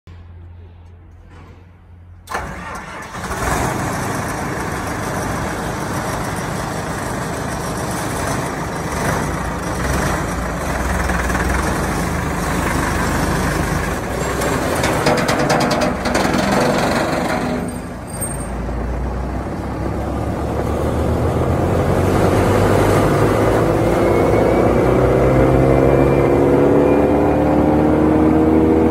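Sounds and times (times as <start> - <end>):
brush chipper engine running: 2.3 - 18.1.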